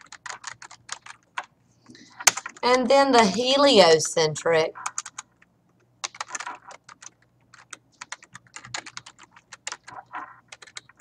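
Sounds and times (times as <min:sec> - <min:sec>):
typing on computer keyboard: 0:00.0 - 0:01.5, 0:02.2 - 0:02.6, 0:04.8 - 0:11.0.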